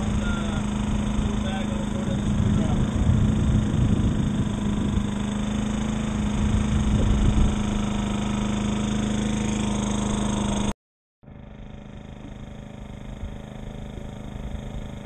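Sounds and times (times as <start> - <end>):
boat engine humming: 0.0 - 15.0
wind buffeting microphone: 0.8 - 5.4, 6.2 - 8.0.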